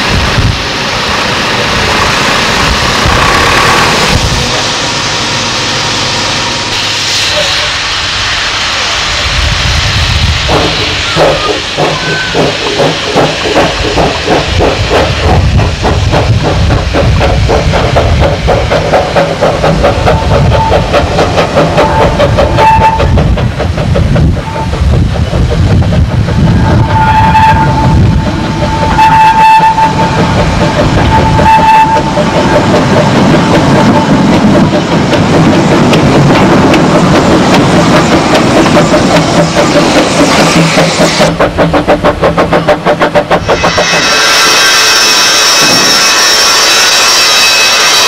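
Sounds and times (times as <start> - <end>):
steam locomotive chuffing: 0.0 - 48.0
steam whistle blasts: 21.9 - 23.1, 26.8 - 28.0, 28.7 - 30.2, 31.0 - 32.2, 43.6 - 48.0.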